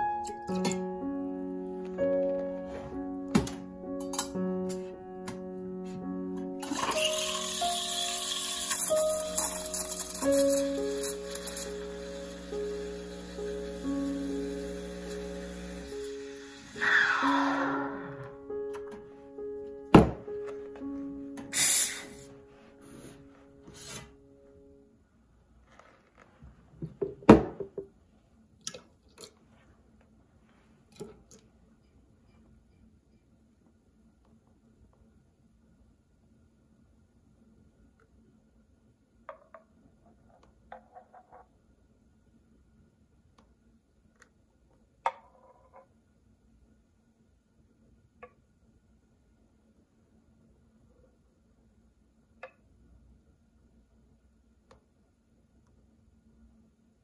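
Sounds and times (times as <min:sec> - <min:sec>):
pitcher and cup clinking: 0:06.6 - 0:11.8.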